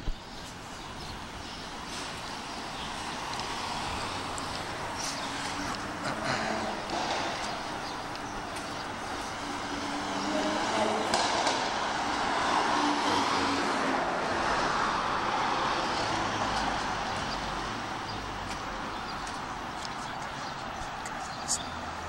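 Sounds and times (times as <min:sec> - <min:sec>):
steady traffic hum: 0:00.0 - 0:22.0
car passing close by: 0:02.9 - 0:18.9.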